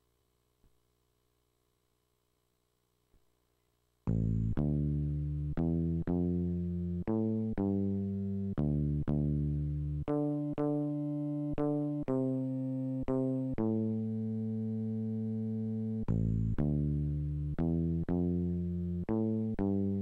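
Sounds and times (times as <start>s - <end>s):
sampled electric bass notes: 4.1s - 20.0s.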